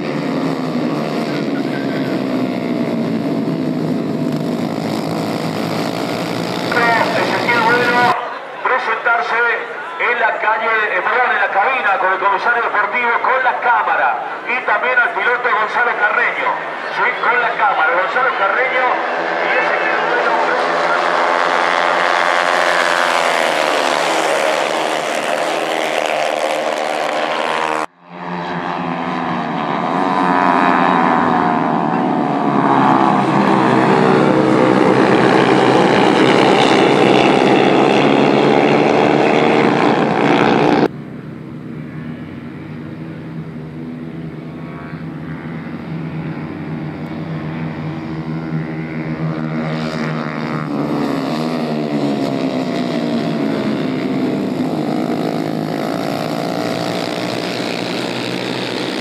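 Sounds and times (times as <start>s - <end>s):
racing motorcycles at high revs: 0.0s - 8.2s, 18.6s - 59.0s
quieter steady engine: 0.0s - 59.0s.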